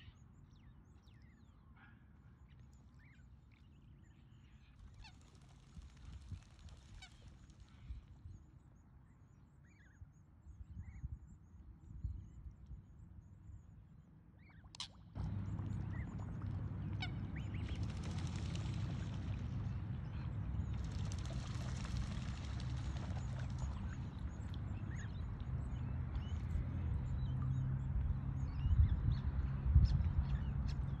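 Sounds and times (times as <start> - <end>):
soft waterfowl calls: 14.6 - 18.1
steady low rumble: 15.2 - 31.0.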